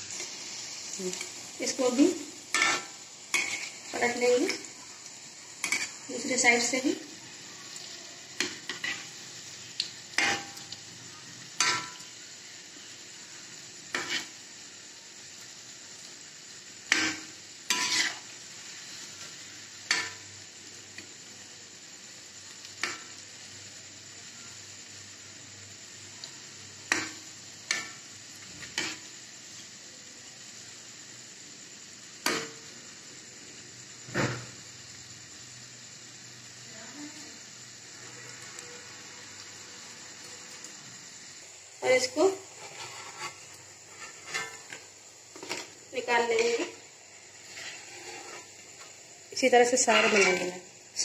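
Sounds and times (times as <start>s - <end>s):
food deep-frying in oil: 0.0s - 51.0s
metal spoon scraping a pan: 1.1s - 4.7s, 5.6s - 6.8s, 8.4s - 9.3s, 10.1s - 10.7s, 11.6s - 12.1s, 13.9s - 14.4s, 16.9s - 18.3s, 42.3s - 48.9s, 49.7s - 50.6s.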